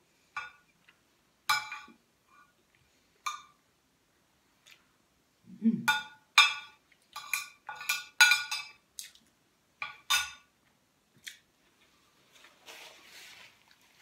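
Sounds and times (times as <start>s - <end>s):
cutlery clinking against a plate: 1.5s - 2.0s, 5.9s - 8.8s, 9.8s - 10.5s
low voice hum: 5.4s - 5.9s.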